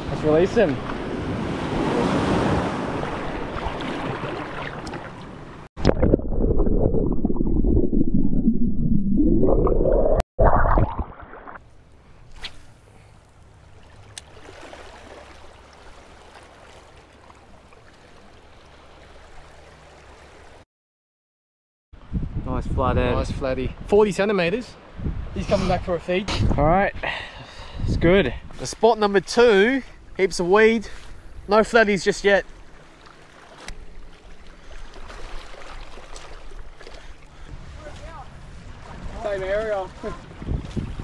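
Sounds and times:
small waves washing in: 0.0s - 5.7s, 13.4s - 20.6s, 30.8s - 41.0s
low wash of calm water: 0.0s - 8.4s, 10.7s - 20.6s, 29.2s - 41.0s.

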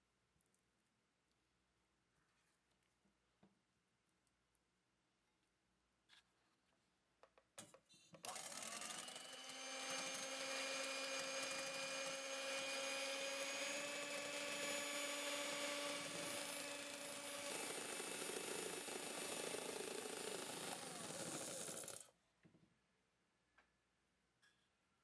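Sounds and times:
electric hand mixer whirring: 8.2s - 22.1s.

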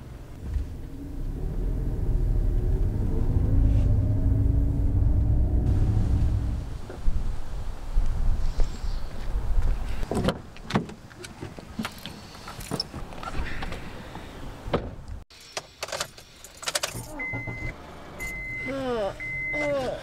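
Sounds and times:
low rumble: 0.3s - 8.5s.

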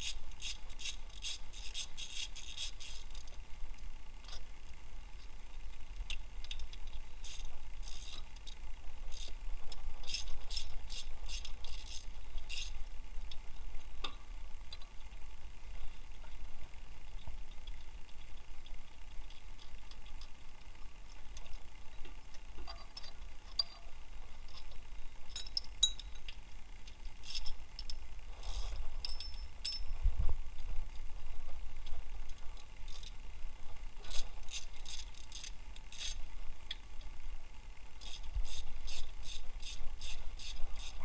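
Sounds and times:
ratchet clicking: 0.0s - 3.3s, 6.5s - 9.4s, 10.0s - 12.8s, 27.2s - 28.0s, 34.1s - 36.2s, 38.0s - 41.0s
metal hand tools clinking: 25.4s - 26.3s, 29.0s - 29.9s.

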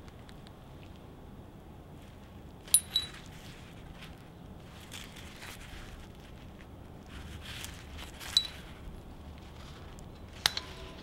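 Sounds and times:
leather gloves rustling: 2.0s - 10.5s
metal pieces clinking: 2.7s - 3.3s.

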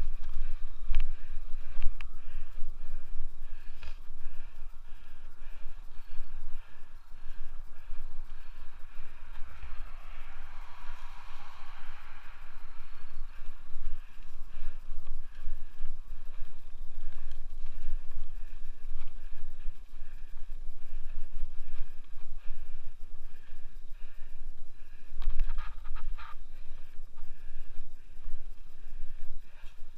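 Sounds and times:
tyres hissing over dirt trail: 0.0s - 29.9s
wind buffeting microphone: 0.0s - 29.9s.

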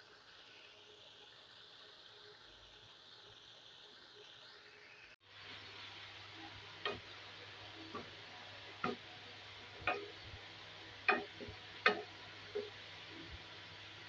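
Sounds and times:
faint sizzle: 0.0s - 14.0s
wooden spatula knocking on wok: 6.8s - 7.1s, 7.9s - 8.1s, 8.8s - 9.1s, 9.8s - 10.2s, 11.1s - 12.8s.

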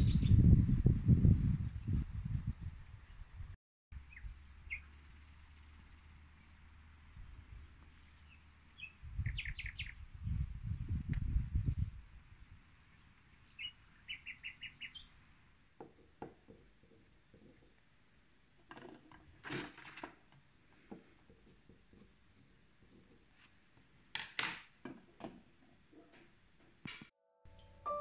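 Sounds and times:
bird chirping: 3.1s - 6.2s, 7.9s - 10.2s, 12.9s - 15.4s.

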